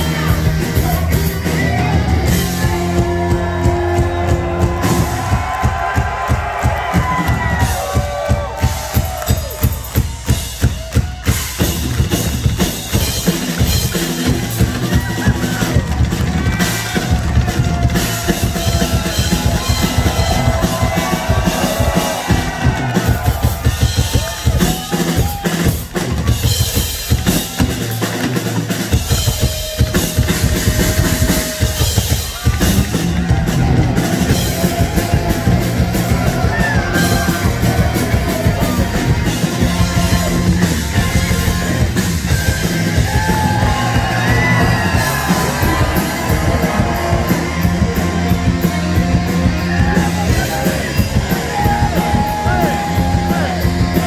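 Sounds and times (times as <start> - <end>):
drum kit: 0.0 - 54.0
hard rock band playing: 0.0 - 54.0.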